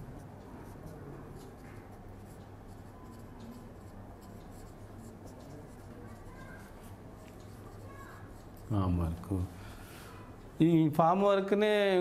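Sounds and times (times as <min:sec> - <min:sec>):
marker scratching on whiteboard: 0:00.0 - 0:09.3.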